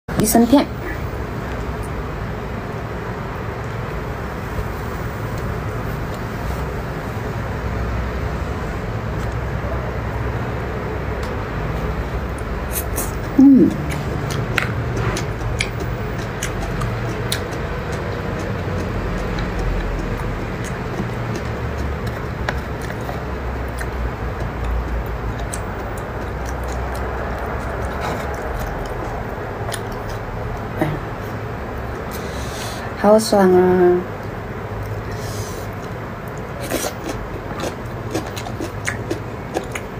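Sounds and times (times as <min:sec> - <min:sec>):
low background rumble: 0:00.1 - 0:39.9.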